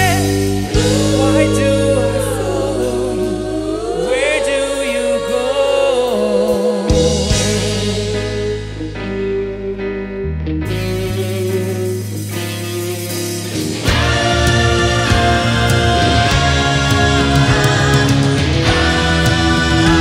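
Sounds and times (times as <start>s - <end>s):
choir singing harmonies: 0.0s - 8.9s, 13.7s - 20.0s
keyboard and bass notes: 0.0s - 20.0s.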